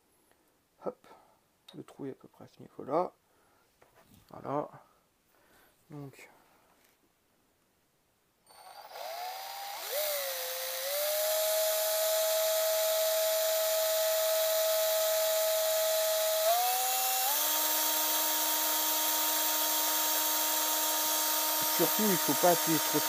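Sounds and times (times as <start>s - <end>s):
cordless drill whining: 8.5s - 23.0s
drill bit hissing on glass: 8.5s - 23.0s.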